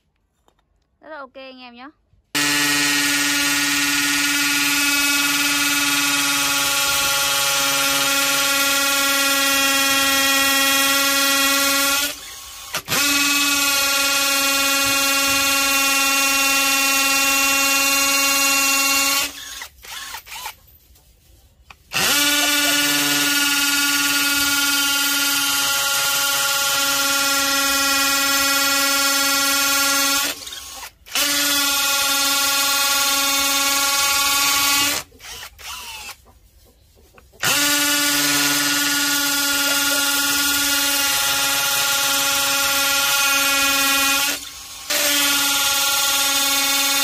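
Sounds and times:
cordless drill boring into masonry: 0:02.4 - 0:20.6, 0:21.7 - 0:36.3, 0:37.4 - 0:47.0.

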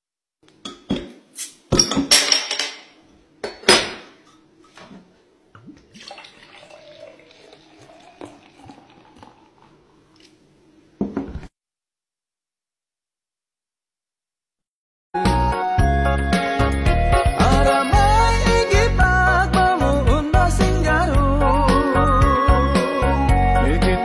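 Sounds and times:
beer pouring with fizzing hiss: 0:05.6 - 0:10.3.

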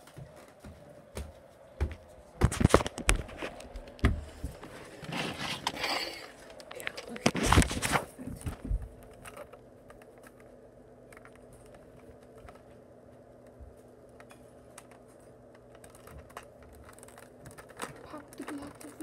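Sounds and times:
faint steady hum: 0:00.0 - 0:19.0
device handling rubbing and bumping: 0:02.4 - 0:10.4.

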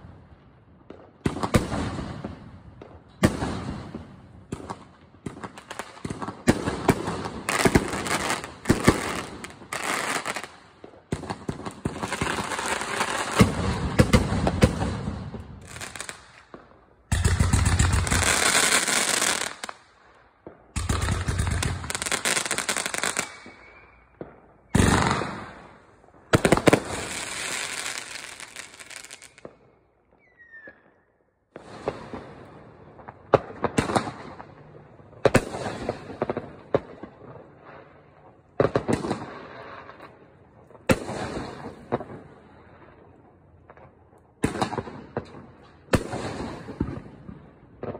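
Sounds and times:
fireworks bursting and crackling: 0:00.0 - 0:47.9.

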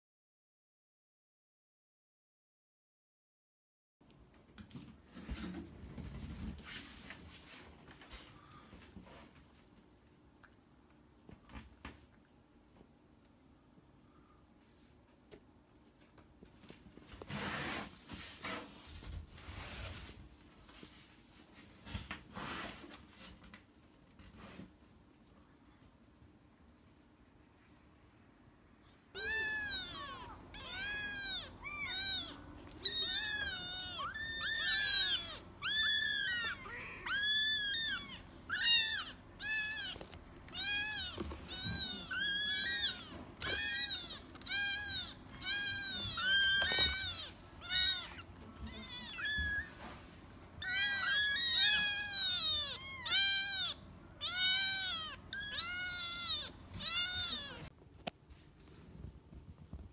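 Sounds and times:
kittens mewing: 0:29.1 - 0:49.9, 0:50.5 - 0:57.7.

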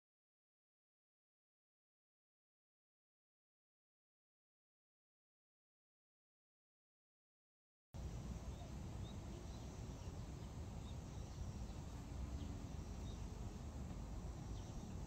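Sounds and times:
small birds chirping: 0:08.0 - 0:15.0.

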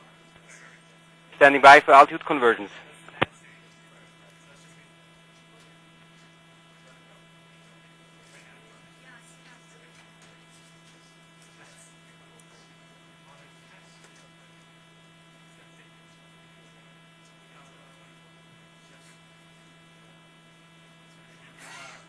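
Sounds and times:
faint electrical hum: 0:00.0 - 0:22.0
person speaking: 0:01.4 - 0:02.8.

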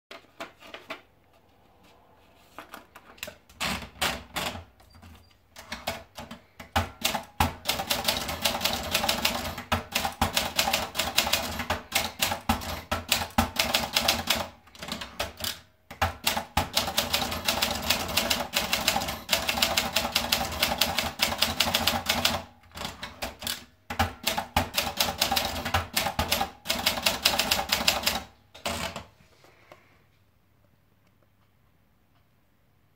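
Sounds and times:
typewriter keystroke clacks: 0:05.6 - 0:29.1.

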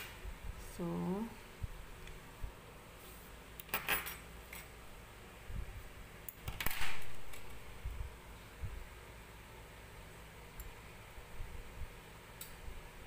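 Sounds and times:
light clinking and rustling: 0:03.7 - 0:04.7.

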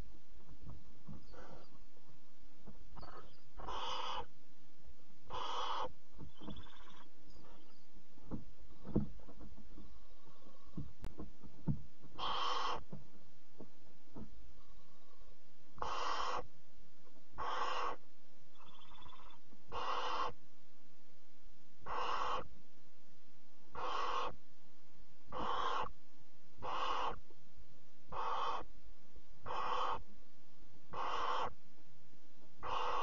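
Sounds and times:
faint twittering call: 0:01.1 - 0:01.8, 0:02.9 - 0:04.4, 0:05.3 - 0:07.9, 0:12.2 - 0:12.9, 0:14.7 - 0:16.5, 0:17.4 - 0:20.4, 0:21.8 - 0:22.5, 0:23.7 - 0:24.4, 0:25.3 - 0:26.0, 0:26.6 - 0:27.2, 0:28.1 - 0:28.7, 0:29.4 - 0:30.1, 0:30.9 - 0:31.6, 0:32.6 - 0:33.0
owlets hissing calls: 0:01.3 - 0:01.8, 0:03.0 - 0:04.3, 0:05.3 - 0:07.6, 0:12.2 - 0:12.9, 0:15.8 - 0:16.5, 0:17.4 - 0:18.0, 0:18.6 - 0:20.4, 0:21.8 - 0:22.5, 0:23.7 - 0:24.4, 0:25.3 - 0:26.0, 0:26.6 - 0:27.2, 0:28.1 - 0:28.7, 0:29.4 - 0:30.1, 0:30.9 - 0:31.6, 0:32.6 - 0:33.0.

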